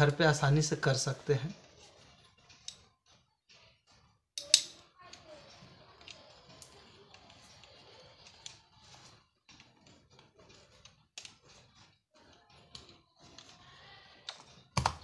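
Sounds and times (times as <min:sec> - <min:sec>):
metal parts clicking and scraping: 0:01.8 - 0:14.9.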